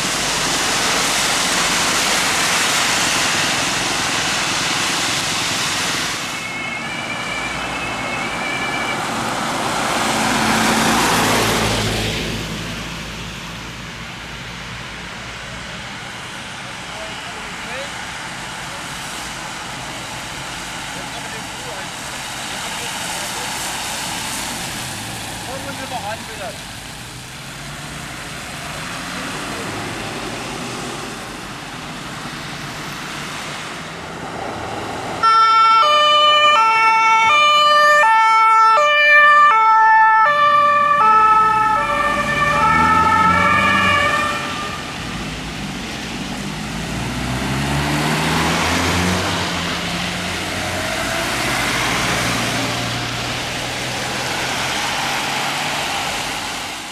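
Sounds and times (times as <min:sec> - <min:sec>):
tyre hiss on wet road: 0:00.0 - 0:07.8, 0:09.0 - 0:35.2, 0:44.2 - 0:56.9
two-tone ambulance siren: 0:06.2 - 0:12.0, 0:35.2 - 0:45.4
engine accelerating away: 0:40.8 - 0:56.7.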